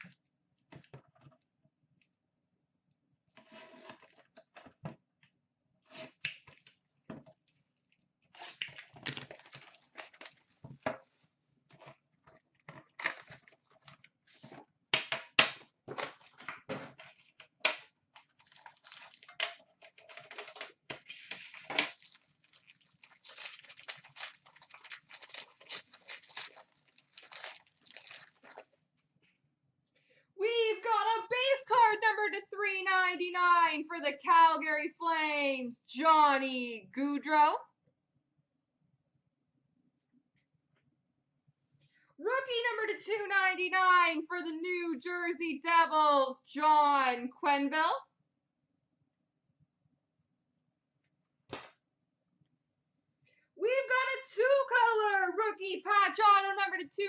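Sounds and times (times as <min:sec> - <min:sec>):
plastic and foil wrapper crinkling: 0:08.3 - 0:10.6, 0:18.1 - 0:19.4, 0:21.0 - 0:28.8.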